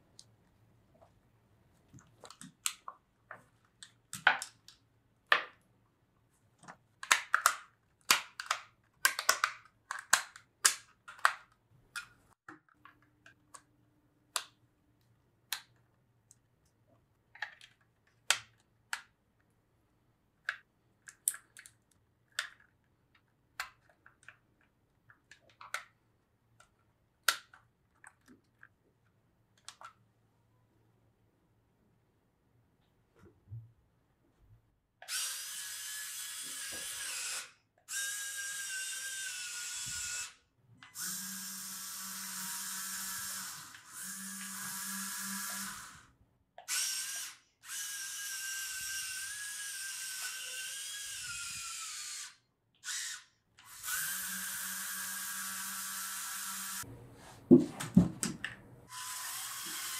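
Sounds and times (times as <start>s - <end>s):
plastic parts clicking: 6.6s - 13.7s, 15.4s - 19.5s, 20.4s - 30.0s.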